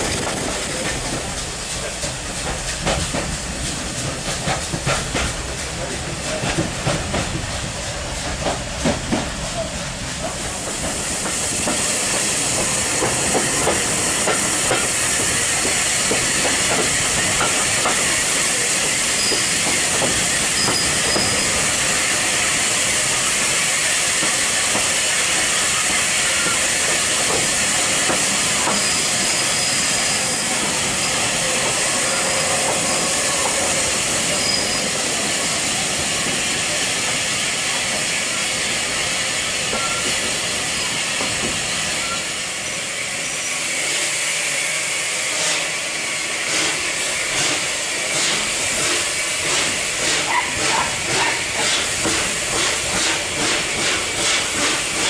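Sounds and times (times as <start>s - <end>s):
rushing hiss of moving train: 0.0s - 55.0s
faint high squeals: 34.3s - 35.0s, 39.7s - 40.2s, 41.9s - 42.4s.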